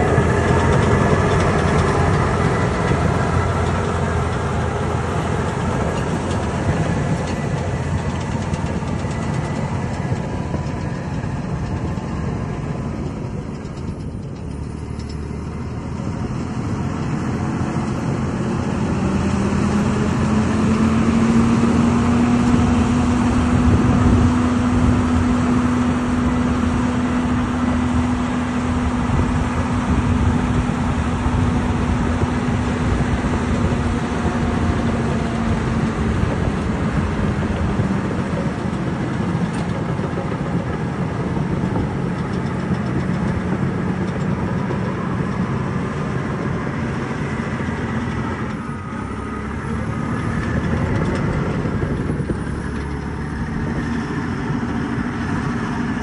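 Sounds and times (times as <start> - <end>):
crawler dozer diesel engine: 0.0 - 56.0.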